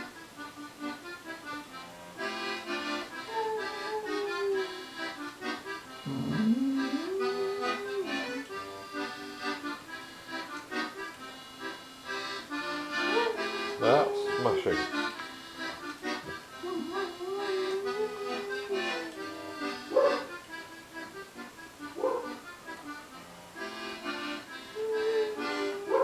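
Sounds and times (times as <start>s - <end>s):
melodeon playing a waltz: 2.2s - 21.6s, 23.6s - 26.0s
dog howling: 3.2s - 5.1s, 6.1s - 8.5s, 12.9s - 15.1s, 16.6s - 20.3s, 22.0s - 22.4s, 24.8s - 26.0s.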